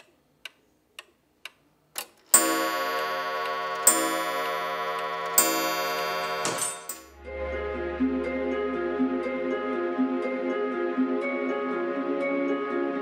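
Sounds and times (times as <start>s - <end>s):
pendulum clock ticking: 0.0s - 7.1s
clock chime ringing: 2.3s - 7.1s.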